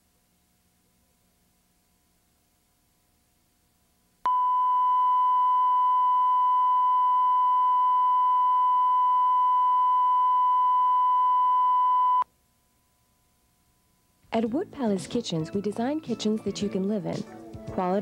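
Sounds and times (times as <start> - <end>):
steady test tone: 4.3 - 12.2.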